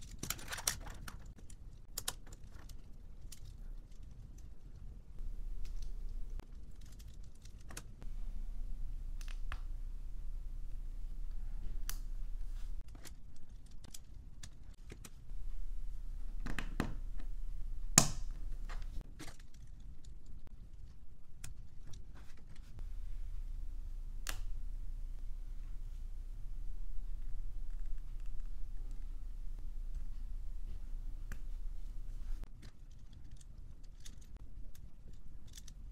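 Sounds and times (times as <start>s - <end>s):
plastic pieces clicking and snapping: 0.0s - 4.5s, 32.5s - 35.9s.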